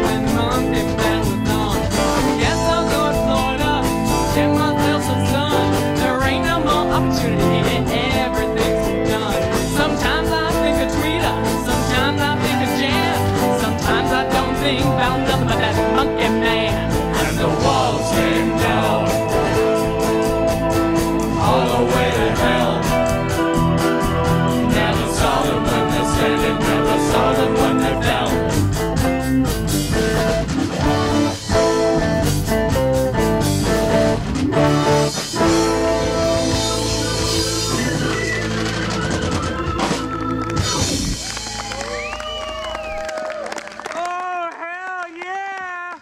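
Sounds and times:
live rock band playing: 0:00.0 - 0:43.1
audience whooping: 0:37.5 - 0:46.0.

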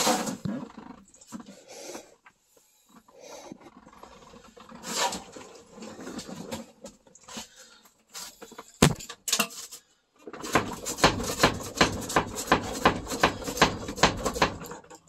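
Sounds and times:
camera handling rustling and knocks: 0:08.8 - 0:09.1.

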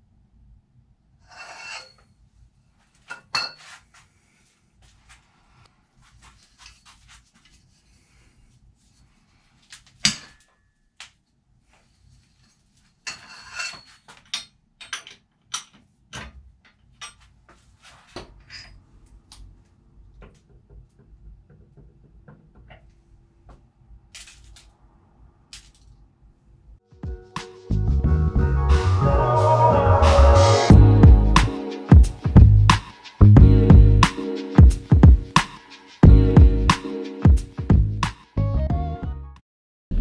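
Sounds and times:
light metal scraping: 0:01.2 - 0:02.2, 0:12.3 - 0:14.2.

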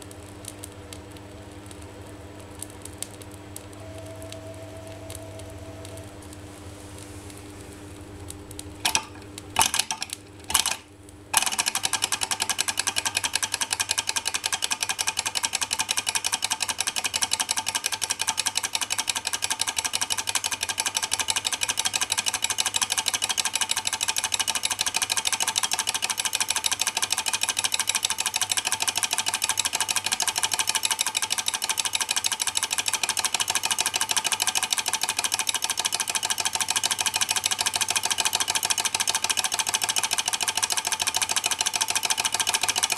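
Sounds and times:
flywheel flick clicks: 0:08.8 - 0:42.9
small engine mechanical clatter: 0:08.8 - 0:42.9.

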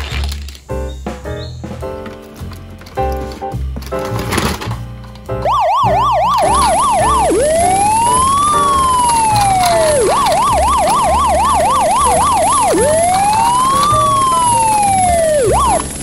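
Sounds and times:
electronic siren yelping and wailing: 0:05.4 - 0:16.0.

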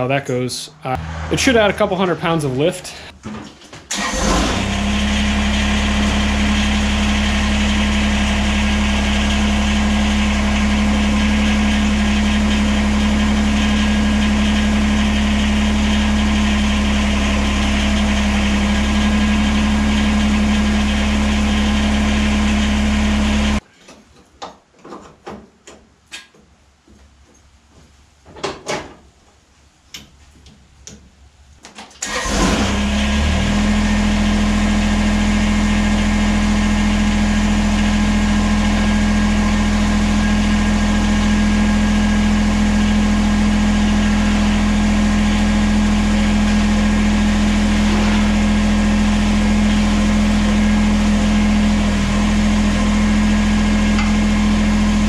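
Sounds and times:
diesel tractor engine idling: 0:00.8 - 0:03.1, 0:03.9 - 0:23.6, 0:32.0 - 0:55.0.

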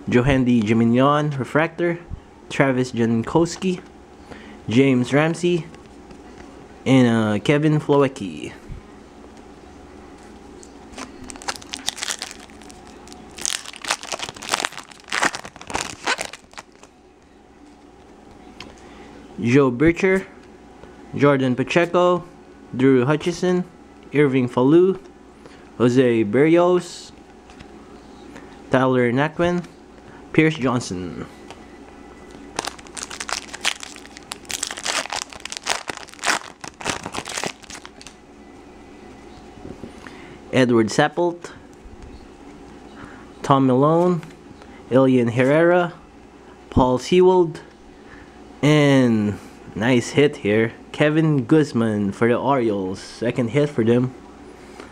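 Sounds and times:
foil wrapper crinkling and tearing: 0:11.0 - 0:16.9, 0:32.6 - 0:38.2.

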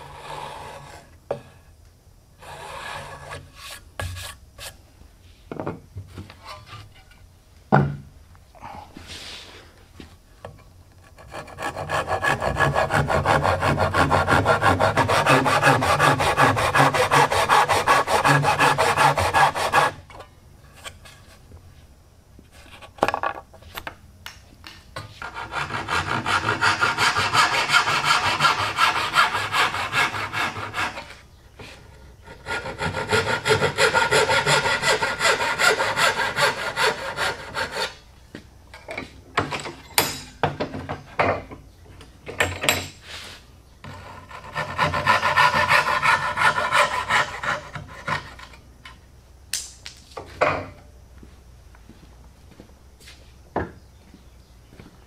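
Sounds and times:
handsaw cutting wood: 0:11.2 - 0:20.0, 0:25.2 - 0:31.2, 0:32.2 - 0:38.0, 0:44.0 - 0:48.5.

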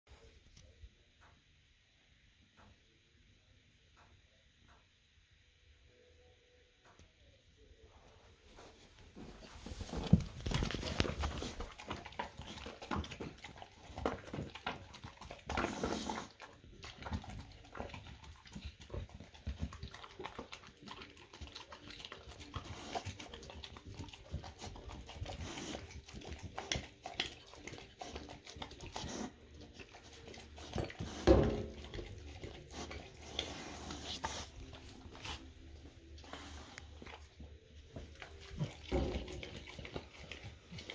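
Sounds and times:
dog chewing and licking: 0:09.6 - 0:40.9.

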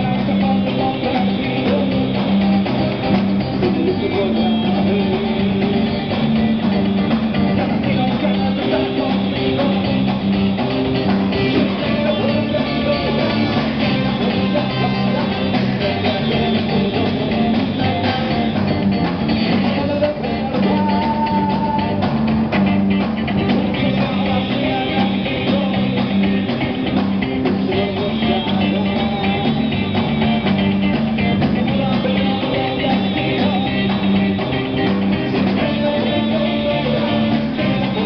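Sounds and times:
person singing: 0:00.0 - 0:18.8, 0:19.4 - 0:22.2, 0:23.3 - 0:38.0
rock band with horns playing: 0:00.0 - 0:38.0.

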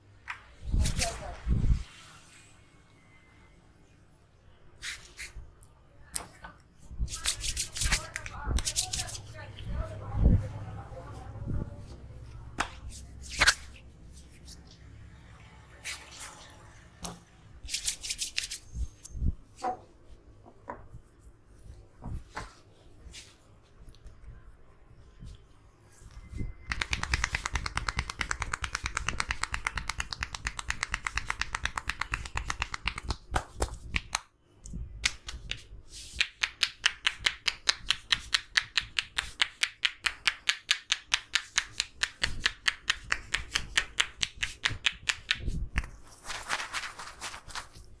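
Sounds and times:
hands rubbing through hair: 0:07.0 - 0:09.9, 0:12.6 - 0:14.7, 0:17.6 - 0:19.2, 0:25.2 - 0:34.2, 0:35.0 - 0:48.0
hands tapping on head: 0:26.7 - 0:34.3, 0:35.0 - 0:45.9.

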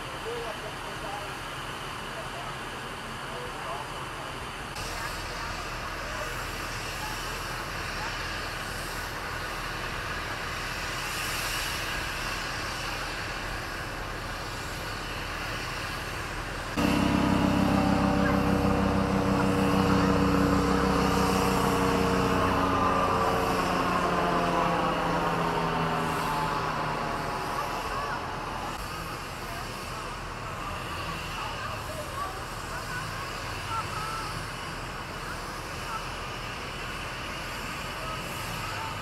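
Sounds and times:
outdoor background noise: 0:00.0 - 0:39.0
vehicle engine hum: 0:02.1 - 0:39.0
high whine falling in pitch: 0:16.8 - 0:28.8.

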